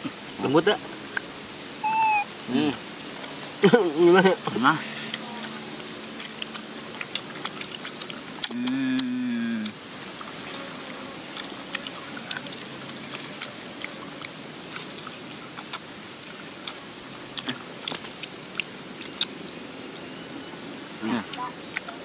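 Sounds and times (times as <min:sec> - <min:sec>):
background hiss: 0:00.0 - 0:22.0
thin high tone: 0:01.8 - 0:02.7
bone-picking sounds: 0:01.8 - 0:02.8
mouth clicks: 0:01.8 - 0:02.8, 0:06.2 - 0:09.8
people chewing: 0:04.9 - 0:20.2, 0:21.0 - 0:22.0.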